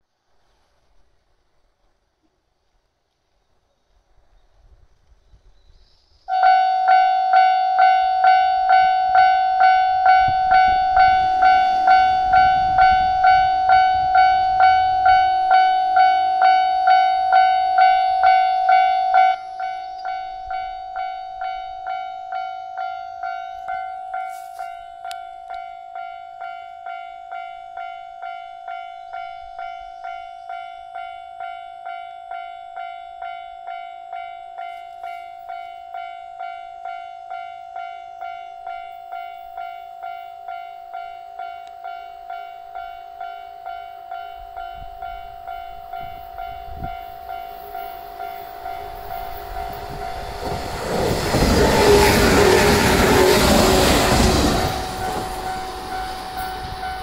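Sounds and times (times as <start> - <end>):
train rumble: 4.0 - 27.9, 34.6 - 57.0.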